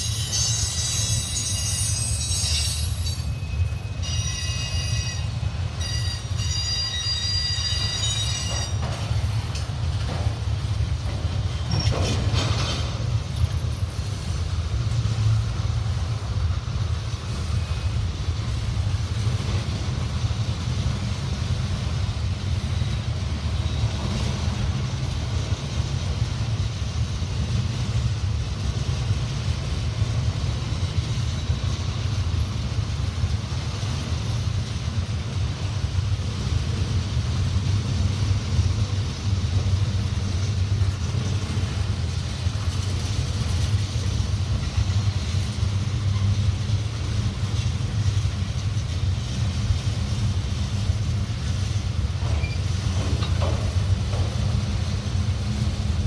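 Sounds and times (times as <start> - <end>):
wheel squeal: 0.0 - 8.8, 52.2 - 53.0
freight cars rumbling on rails: 0.0 - 56.0
train clunks: 0.0 - 56.0.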